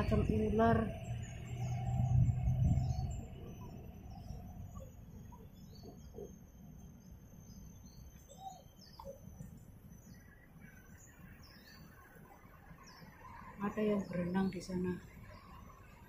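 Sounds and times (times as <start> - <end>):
low background rumble: 0.0 - 11.6
small birds chirping: 0.0 - 16.0.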